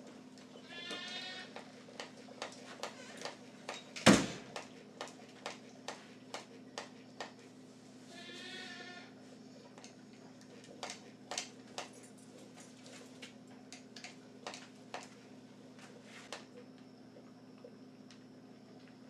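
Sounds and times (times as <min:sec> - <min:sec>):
low steady hum: 0:00.0 - 0:19.0
milking unit clicks: 0:09.6 - 0:12.2.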